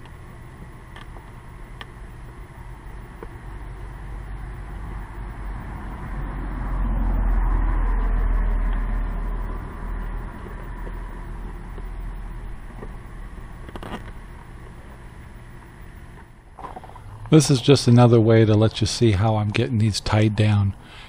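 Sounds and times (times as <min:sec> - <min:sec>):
passing vehicle rumble: 0:04.4 - 0:11.5.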